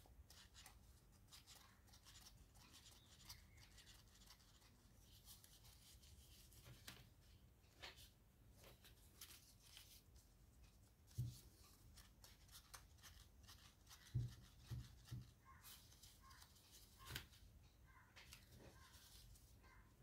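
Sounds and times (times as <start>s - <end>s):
paper rustling and crinkling: 11.1s - 17.4s, 18.2s - 19.8s.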